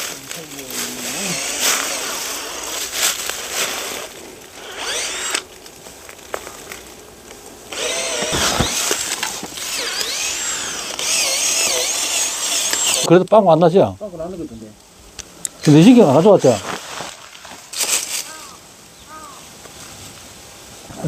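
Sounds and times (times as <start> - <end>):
cordless drill boring into wood: 1.1 - 2.9, 3.8 - 5.5, 7.7 - 13.1.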